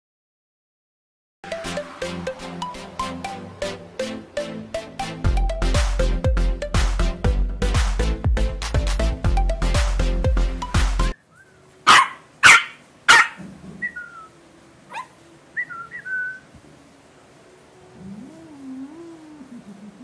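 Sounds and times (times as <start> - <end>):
electronic music: 1.4 - 11.2
puppy yipping: 11.9 - 14.0, 14.9 - 15.2.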